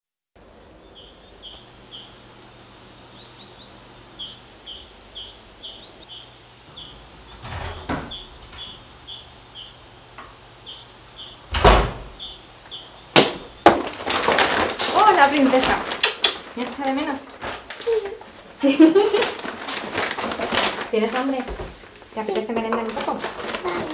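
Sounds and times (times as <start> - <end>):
birds chirping: 0.4 - 19.6, 22.2 - 23.9
door opening thud: 6.8 - 9.3, 11.4 - 12.4.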